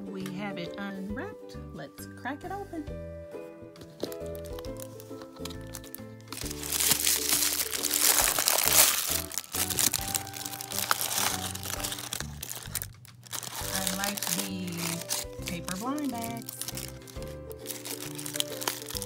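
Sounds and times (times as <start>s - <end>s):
background music: 0.0s - 19.0s
wrapping crinkling and rustling: 3.9s - 19.0s.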